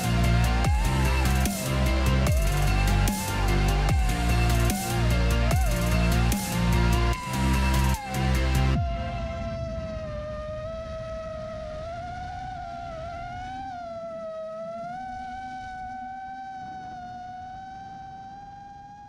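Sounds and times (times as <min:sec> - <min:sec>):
electronic music: 0:00.0 - 0:10.7
long wavering synth note: 0:00.0 - 0:19.0.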